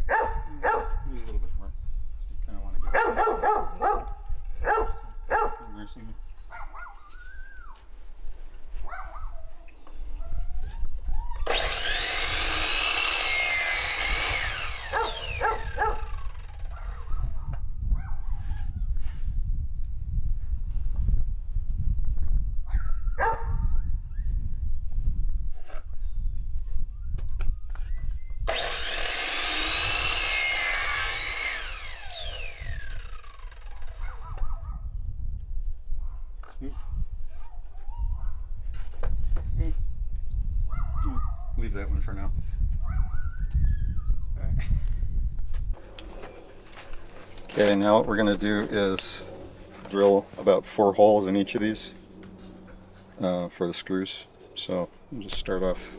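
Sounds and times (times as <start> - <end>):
saw blade cutting wood: 11.4 - 17.2, 28.5 - 34.5
miter saw motor whine: 11.4 - 17.3, 28.4 - 34.5.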